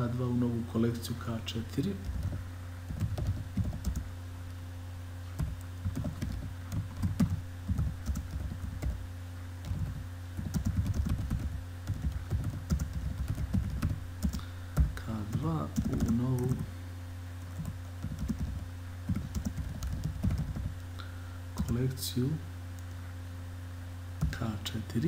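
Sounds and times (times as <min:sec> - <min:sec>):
steady low hum: 0:00.0 - 0:25.0
typing on computer keyboard: 0:02.0 - 0:04.0, 0:05.4 - 0:09.0, 0:09.6 - 0:14.9, 0:17.5 - 0:20.7.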